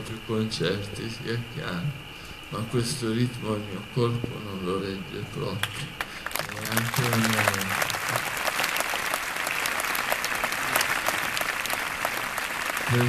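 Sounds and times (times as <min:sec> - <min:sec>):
audience applauding: 0:06.0 - 0:13.0.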